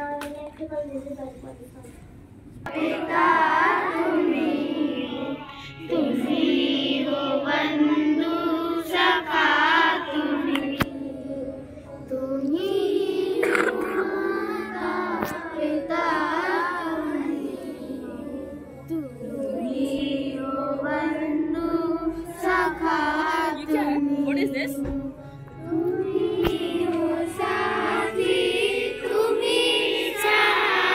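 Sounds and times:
children singing in unison: 2.7 - 24.2, 24.8 - 30.9.

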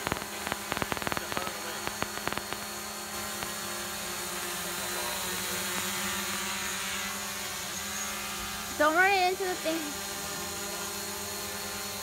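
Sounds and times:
quick clicks: 0.0 - 2.7
drone propellers humming: 0.0 - 12.0.

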